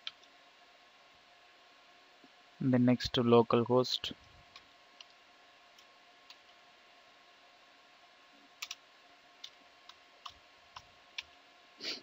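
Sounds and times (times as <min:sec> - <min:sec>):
low room hum: 0:00.0 - 0:12.0
computer keyboard keystrokes: 0:08.6 - 0:08.8.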